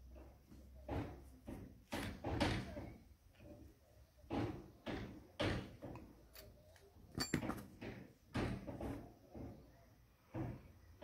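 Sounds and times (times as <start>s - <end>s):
metal part handling knocks: 5.4s - 9.0s.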